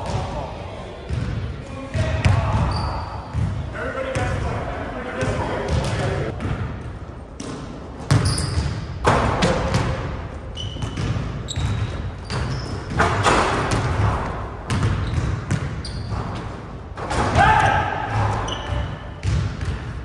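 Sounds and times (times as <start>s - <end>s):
sneaker squeaks: 2.4s - 3.5s, 8.1s - 8.9s, 10.4s - 13.8s, 14.7s - 16.5s, 17.6s - 19.7s
basketballs bouncing on wood floor: 5.2s - 20.0s.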